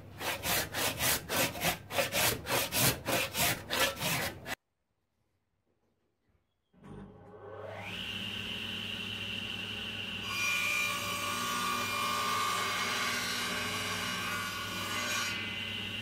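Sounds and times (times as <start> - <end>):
saw blade cutting wood: 0.0 - 4.6
table saw motor hum: 7.2 - 10.7.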